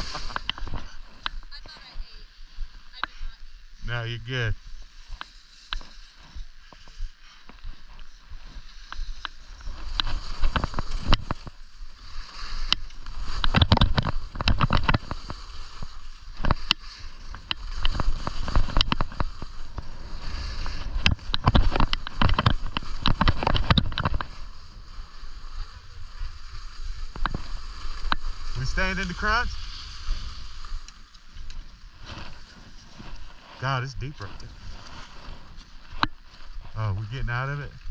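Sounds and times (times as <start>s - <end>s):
skis scraping over snow: 0.0s - 37.9s
wind noise on microphone: 8.3s - 30.9s.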